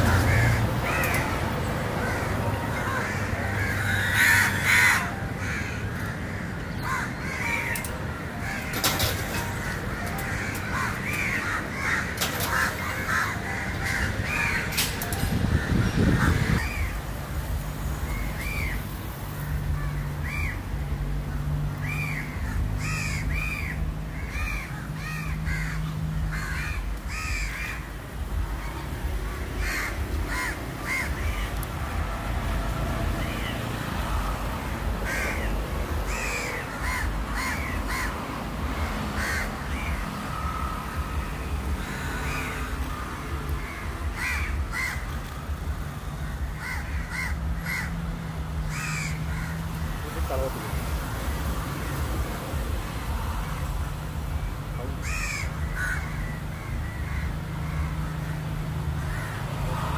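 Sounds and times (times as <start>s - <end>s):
crows cawing: 0.0s - 17.0s, 21.8s - 32.1s, 34.1s - 50.3s, 54.8s - 59.9s
steady background noise: 0.0s - 59.9s.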